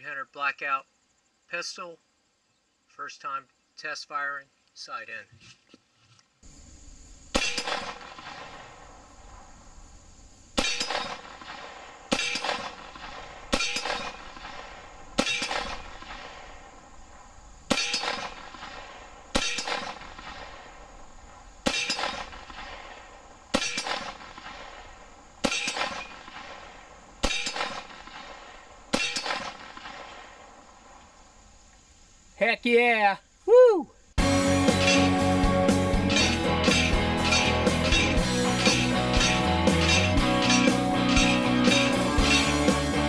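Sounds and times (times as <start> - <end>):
gunshots: 7.3 - 9.6, 10.5 - 30.7, 35.8 - 43.0
steel target ringing: 7.4 - 8.5, 10.6 - 11.4, 12.1 - 16.2, 17.7 - 18.8, 19.4 - 20.2, 21.7 - 22.4, 23.6 - 24.2, 25.4 - 26.3, 27.2 - 27.9, 28.9 - 29.6, 34.6 - 42.9.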